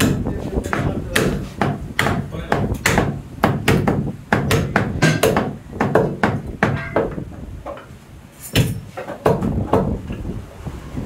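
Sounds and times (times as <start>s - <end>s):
meat cleaver chopping bone on wood: 0.0s - 7.2s.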